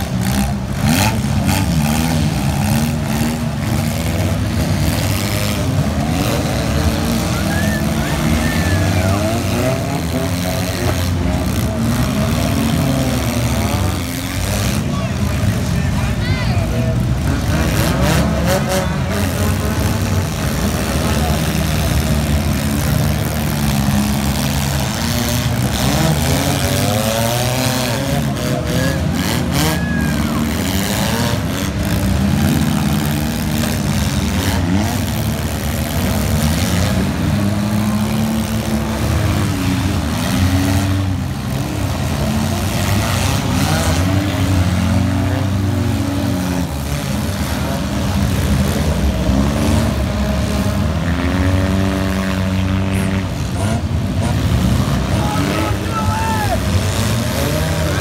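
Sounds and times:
car engines revving: 0.0s - 58.0s.

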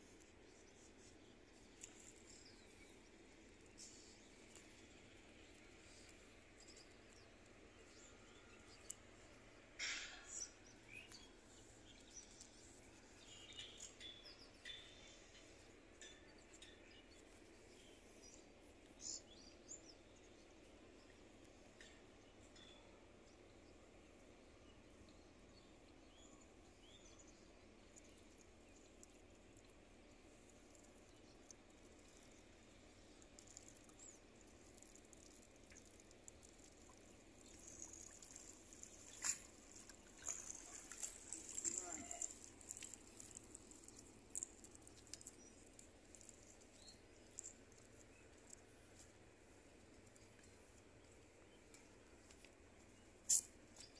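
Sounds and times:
small birds chirping: 0.0s - 53.9s
small ticks: 0.2s - 19.8s, 27.7s - 53.9s
rustling of a cast net: 35.8s - 46.7s.

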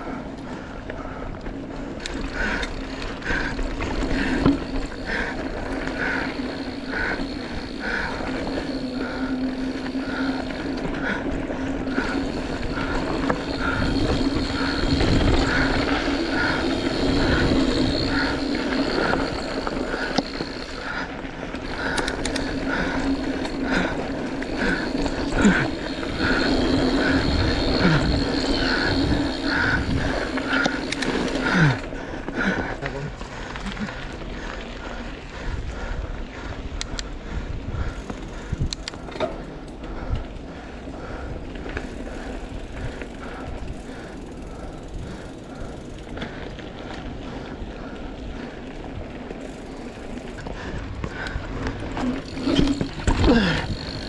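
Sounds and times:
bicycle tyre and wind noise: 0.0s - 54.0s.

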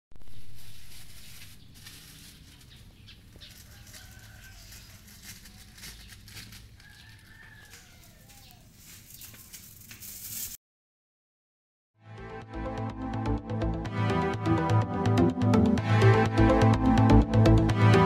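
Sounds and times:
rooster crowing: 3.4s - 6.0s, 6.7s - 8.8s.

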